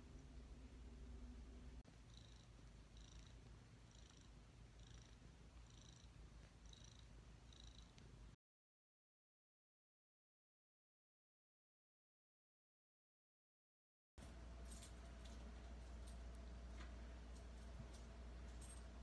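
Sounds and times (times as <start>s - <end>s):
cat purring: 2.0s - 8.3s.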